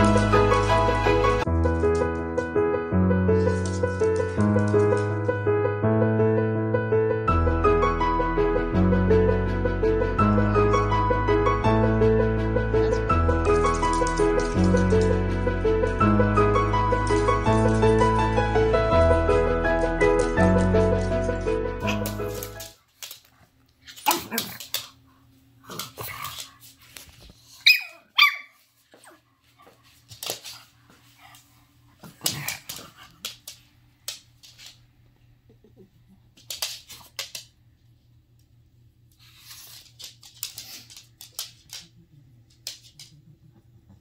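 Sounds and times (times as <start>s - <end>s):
dogs barking and scuffling: 12.7s - 18.5s, 19.5s - 34.8s, 39.2s - 43.2s
puppy yipping: 27.6s - 28.6s.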